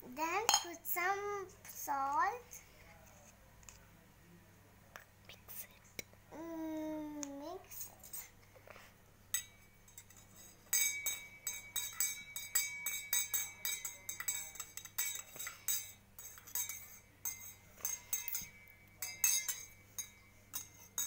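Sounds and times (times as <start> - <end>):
metal spoon clinking in tumbler: 9.3 - 21.0.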